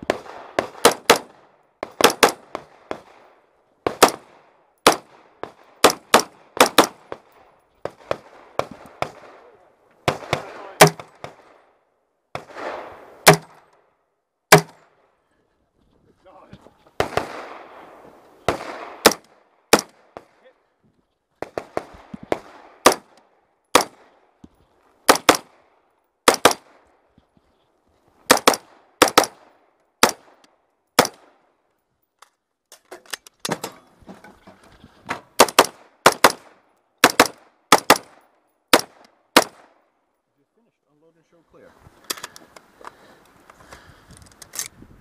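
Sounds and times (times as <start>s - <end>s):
rifle shots: 0.0s - 11.6s, 12.4s - 13.7s, 14.5s - 15.0s, 17.0s - 20.3s, 21.4s - 24.2s, 25.1s - 25.6s, 26.2s - 26.8s, 28.3s - 30.4s, 31.0s - 31.4s, 35.4s - 39.8s.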